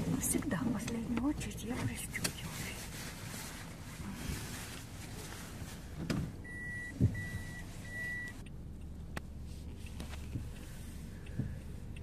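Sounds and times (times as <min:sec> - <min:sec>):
car low hum: 0:00.0 - 0:12.0
dull thump: 0:06.0 - 0:07.4
car warning beeps: 0:06.4 - 0:09.0.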